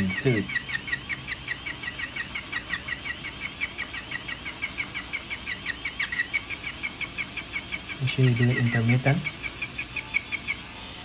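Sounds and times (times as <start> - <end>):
dental drill whining: 0.0 - 11.0
rapid chirping squeak: 0.0 - 11.0.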